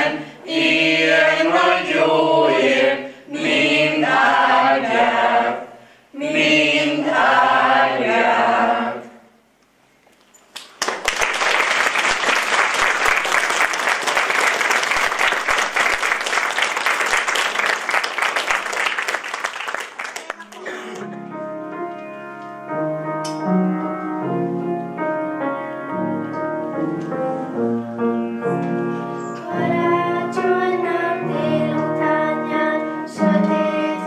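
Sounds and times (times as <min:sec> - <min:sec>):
choir singing a cappella: 0:00.0 - 0:09.4, 0:29.2 - 0:34.0
audience applause: 0:10.6 - 0:21.1.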